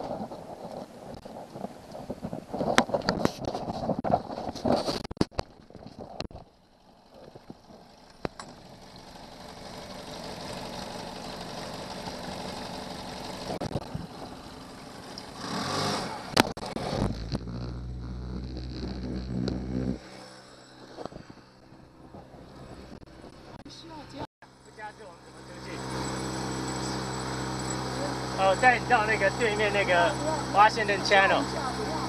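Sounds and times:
wind: 0.0 - 32.0
outboard motor running: 6.4 - 15.4, 16.6 - 23.8, 24.5 - 32.0
low engine hum: 6.5 - 32.0.

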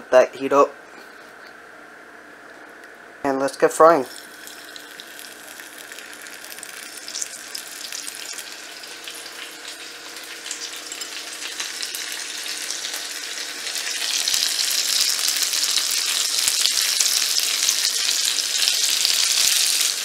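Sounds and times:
fish sizzling in butter: 4.1 - 20.0.

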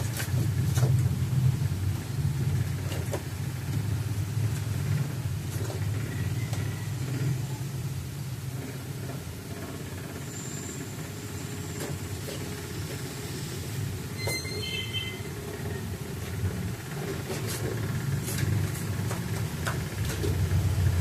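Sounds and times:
low mechanical rumble: 0.0 - 21.0
high tones: 14.1 - 15.5.

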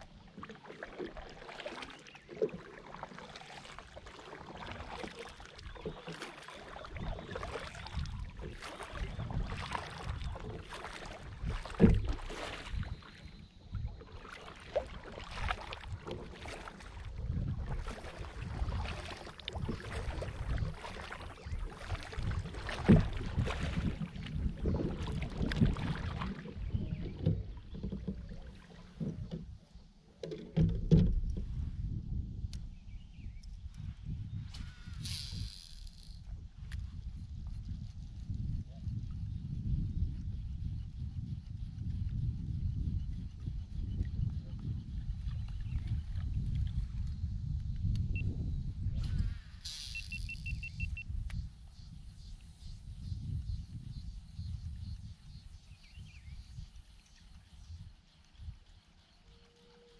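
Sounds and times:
paddle strokes splashing water: 0.0 - 31.8.

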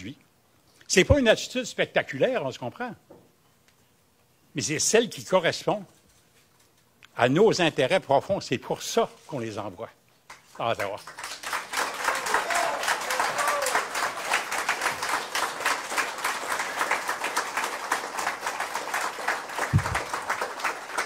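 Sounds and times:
audience applauding: 10.8 - 21.0
low thump: 19.8 - 20.0.

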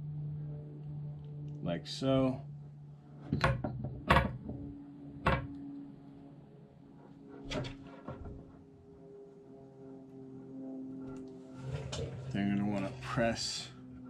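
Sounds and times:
knocks and clicks on wooden table: 3.3 - 4.6.

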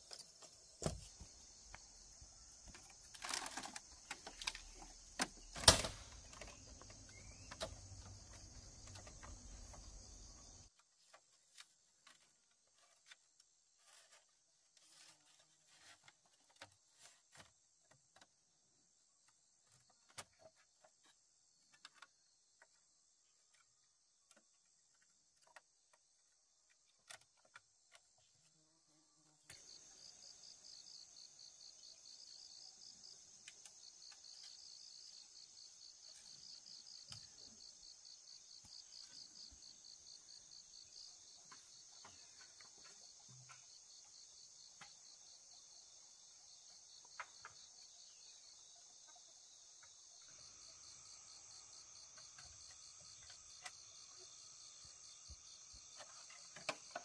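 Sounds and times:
insects chirring drone: 0.0 - 10.8, 25.0 - 57.0.

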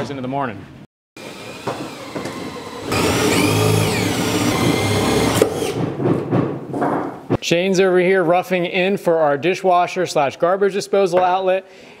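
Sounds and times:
cordless drill boring into wood: 1.2 - 5.8.

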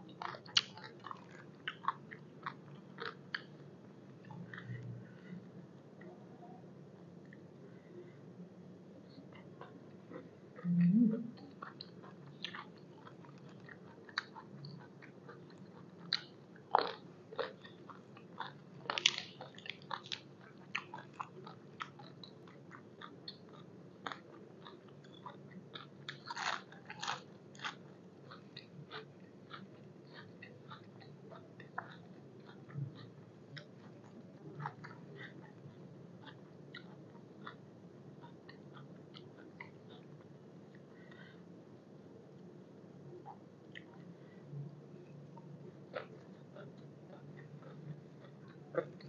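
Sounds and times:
crunchy chewing of vegetables: 0.0 - 5.4, 9.1 - 41.4, 44.9 - 49.0.

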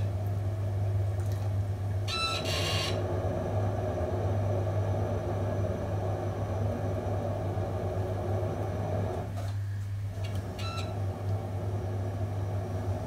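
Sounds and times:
potter's wheel humming: 1.8 - 9.3, 10.1 - 13.0.

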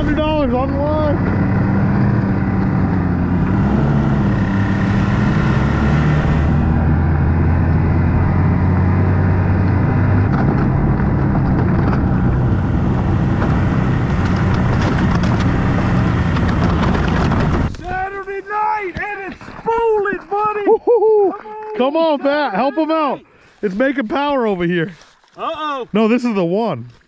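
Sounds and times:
snowmobile engine running: 0.0 - 18.1
scattered crackles: 13.2 - 20.7.

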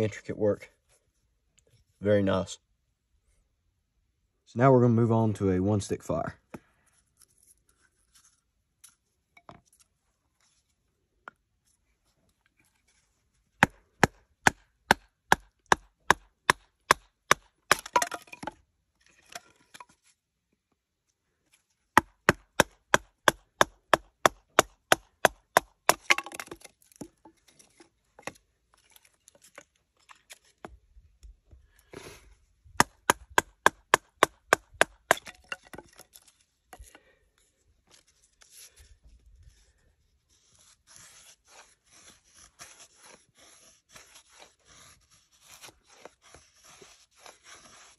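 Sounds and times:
wood splitting and splintering: 13.6 - 18.6, 22.0 - 27.2.

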